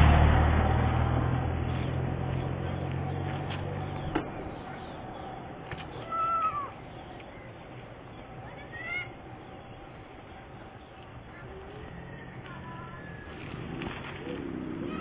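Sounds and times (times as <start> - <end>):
steady background noise: 0.0 - 15.0
high-pitched animal calls: 5.9 - 6.8.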